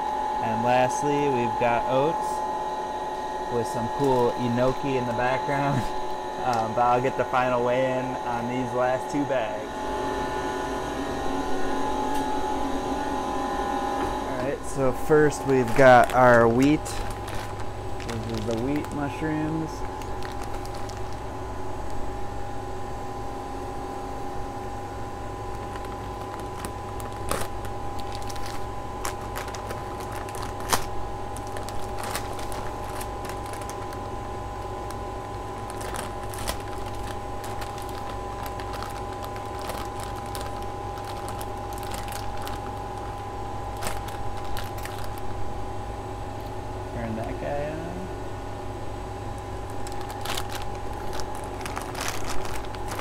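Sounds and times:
hum with high whine: 0:00.0 - 0:53.0
plastic bag crinkling: 0:14.6 - 0:22.1, 0:25.4 - 0:45.4, 0:49.6 - 0:53.0.

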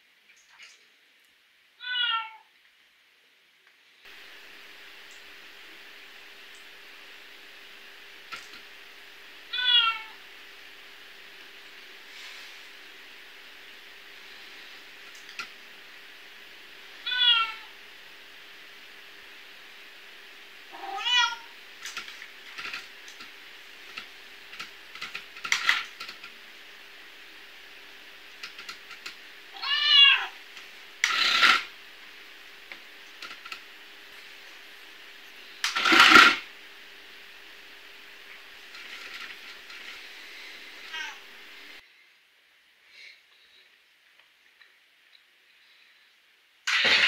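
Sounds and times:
recorded cat meows from speaker: 0:01.8 - 0:02.5, 0:09.5 - 0:10.2, 0:17.0 - 0:17.7, 0:20.7 - 0:21.5, 0:29.5 - 0:30.4, 0:40.9 - 0:41.2.

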